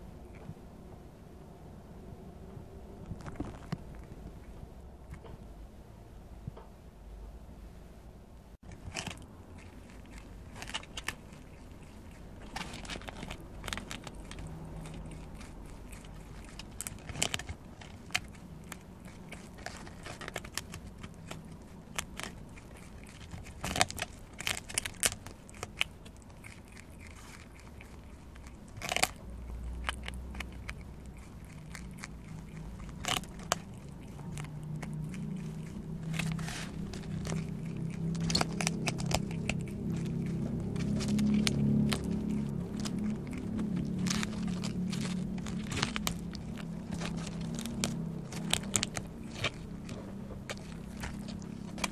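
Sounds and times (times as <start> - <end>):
animal chewing corn husk: 3.0 - 5.4, 8.6 - 51.9.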